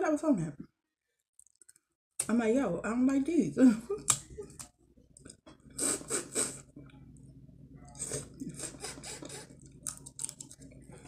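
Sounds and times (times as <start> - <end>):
person chewing: 7.9 - 10.9.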